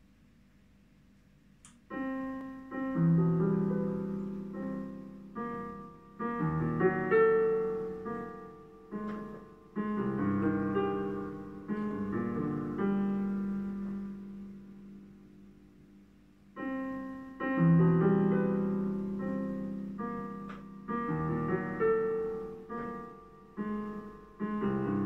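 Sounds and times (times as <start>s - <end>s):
faint click: 1.6s - 2.5s
digital piano arpeggio: 1.9s - 15.8s, 16.5s - 25.0s.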